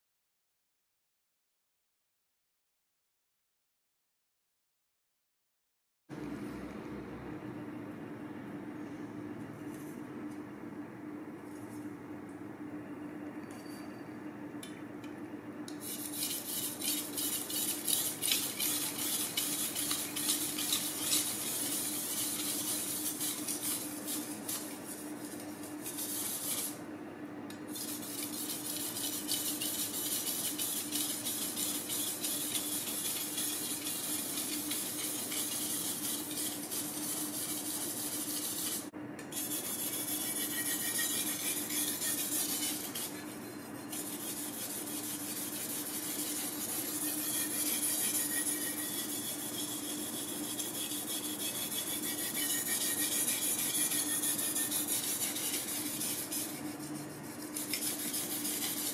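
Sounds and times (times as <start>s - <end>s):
cleaver scraping on whetstone: 15.8s - 26.8s, 27.7s - 58.9s.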